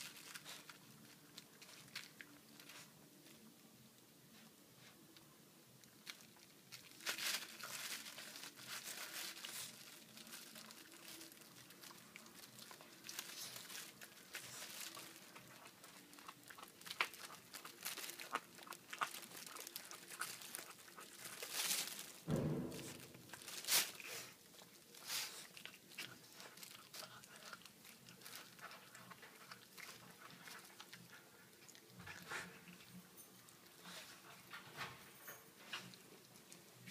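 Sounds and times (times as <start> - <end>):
plastic bag crinkling: 0.0 - 3.4, 5.8 - 34.6
puppy chewing meat: 5.8 - 22.2, 23.1 - 36.9
dull bump: 22.3 - 23.4.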